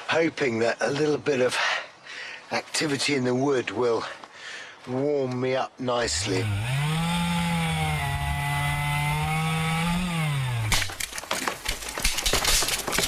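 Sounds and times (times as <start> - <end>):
chainsaw cutting wood: 6.0 - 13.0
wood snapping and branches rustling: 6.1 - 13.0.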